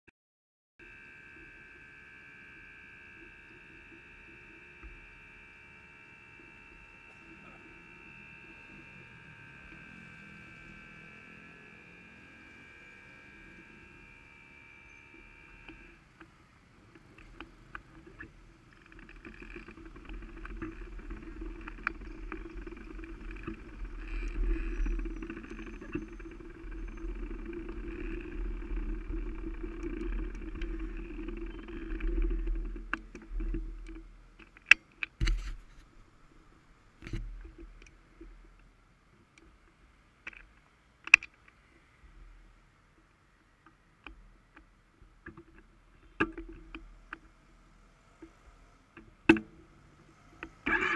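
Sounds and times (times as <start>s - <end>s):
sharp clicks and knocks: 16.9s - 35.9s, 49.0s - 49.6s.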